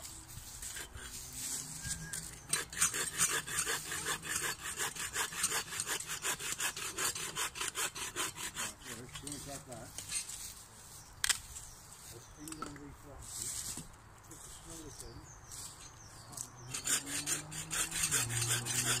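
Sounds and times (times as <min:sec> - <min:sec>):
hand saw cutting branch: 0:00.0 - 0:10.1, 0:16.4 - 0:19.0.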